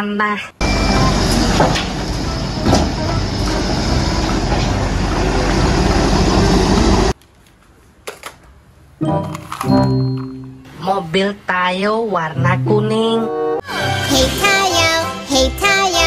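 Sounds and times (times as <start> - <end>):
diesel engine running loudly: 0.6 - 7.1.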